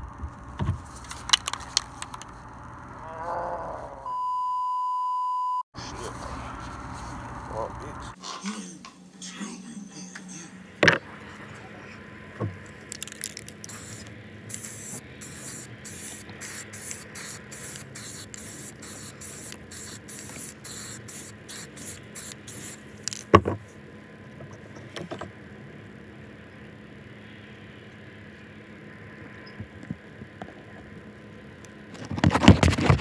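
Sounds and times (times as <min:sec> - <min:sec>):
spray can hissing spurts: 0:00.9 - 0:02.3, 0:12.8 - 0:23.3.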